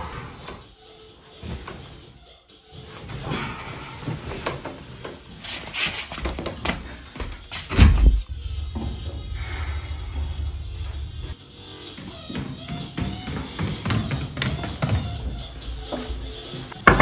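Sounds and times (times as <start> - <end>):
soft footsteps in slippers: 1.3 - 17.0
bass-heavy music: 7.0 - 17.0.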